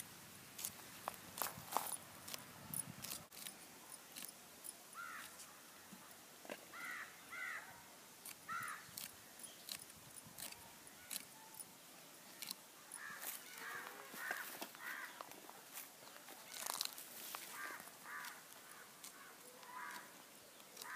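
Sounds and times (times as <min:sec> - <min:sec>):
bird cawing: 0:05.0 - 0:05.9, 0:06.7 - 0:07.8, 0:08.5 - 0:09.0, 0:12.9 - 0:15.4, 0:17.4 - 0:20.9.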